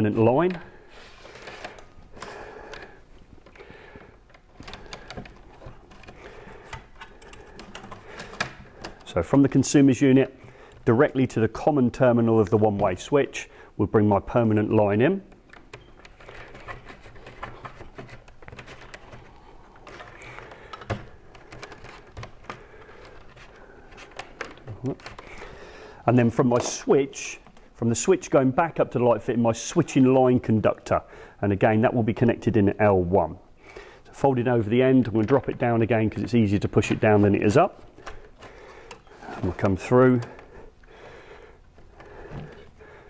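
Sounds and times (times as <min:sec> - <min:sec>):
cable rustling and scraping: 0:00.1 - 0:13.1, 0:14.4 - 0:27.8, 0:34.0 - 0:40.8
small clicks and knocks: 0:01.4 - 0:09.2, 0:15.3 - 0:25.6
cable sliding in conduit: 0:35.1 - 0:40.5.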